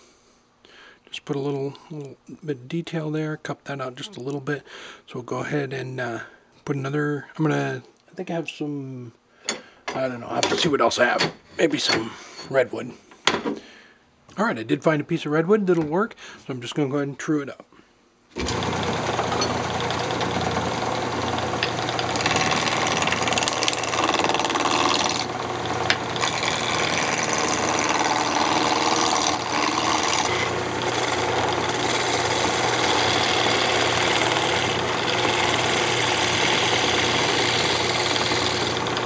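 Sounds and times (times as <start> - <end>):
turning tool cutting wood: 18.4 - 39.0
wood lathe running: 18.4 - 39.0.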